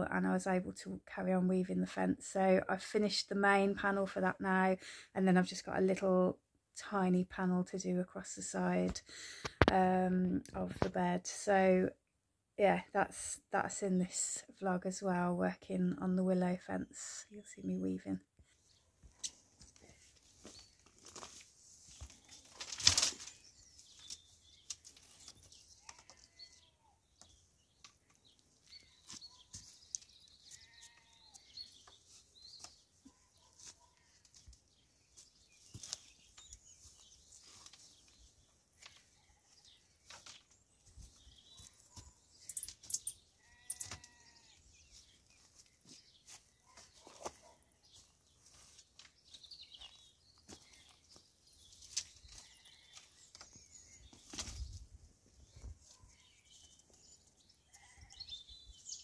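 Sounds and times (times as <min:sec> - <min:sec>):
willow rods rustling and clicking: 0:19.1 - 0:26.4, 0:27.2 - 0:39.1, 0:40.0 - 0:44.2.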